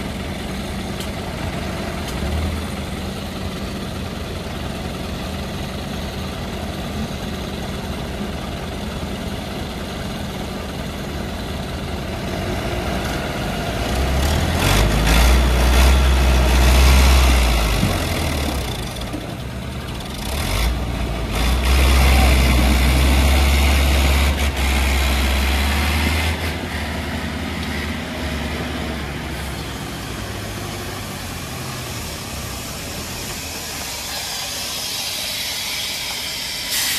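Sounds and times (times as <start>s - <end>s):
tractor and truck diesel engines: 0.0s - 36.9s
hiss: 31.1s - 36.9s.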